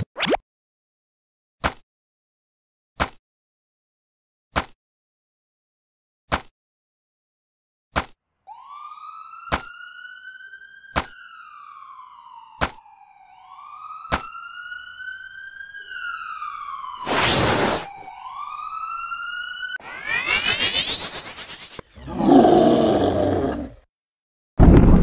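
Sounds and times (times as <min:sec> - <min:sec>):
police siren wailing: 0:08.4 - 0:23.2
loud rushing burst of noise: 0:19.8 - 0:21.8.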